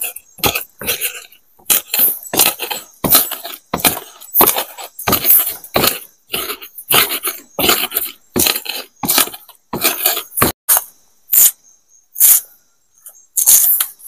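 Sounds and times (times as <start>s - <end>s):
knife scraping on wooden board: 0.0s - 10.6s
stone pestle grinding chilies: 0.0s - 10.6s.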